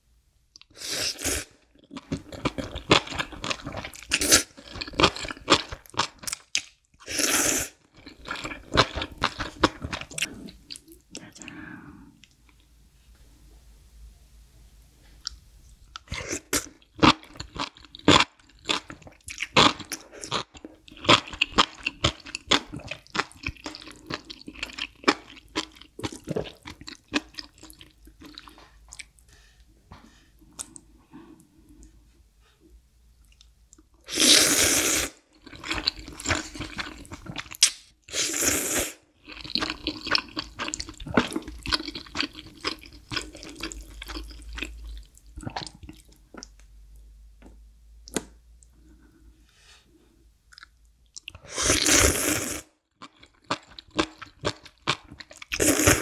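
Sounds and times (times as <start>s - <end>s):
wet chewing and smacking: 16.7s - 29.3s.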